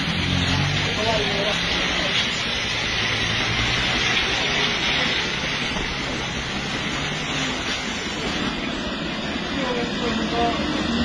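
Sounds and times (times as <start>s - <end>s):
rain on a wet road: 0.0s - 11.0s.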